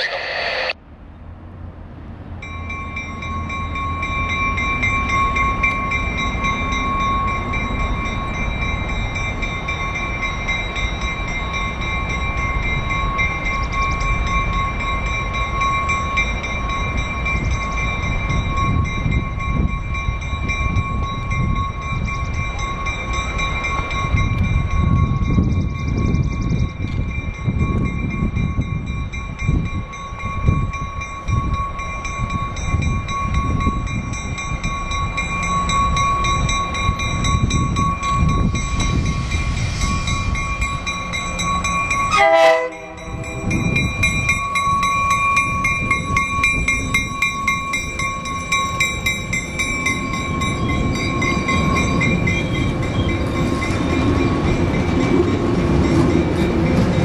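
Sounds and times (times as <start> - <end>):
steady high whine: 0.0 - 0.8
diesel train rumbling past: 0.0 - 57.0.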